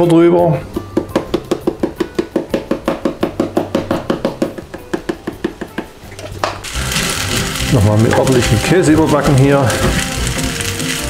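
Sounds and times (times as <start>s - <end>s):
pepper grinder clicking: 6.7s - 11.0s.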